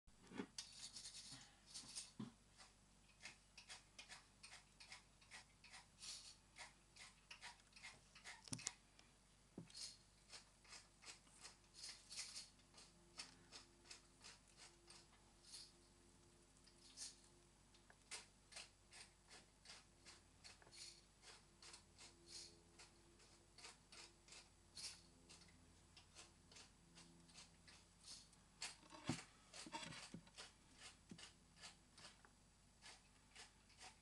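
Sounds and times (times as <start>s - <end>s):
caterpillar chewing leaves: 9.7s - 15.8s.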